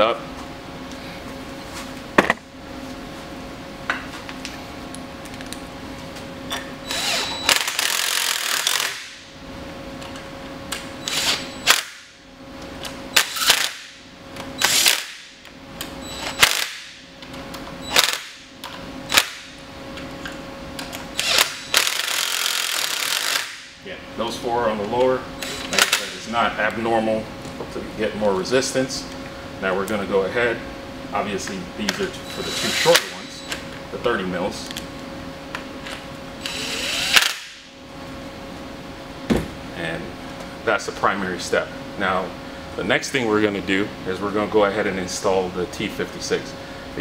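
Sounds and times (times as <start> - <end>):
cordless drill driving bolts: 6.9 - 9.0, 36.4 - 37.4.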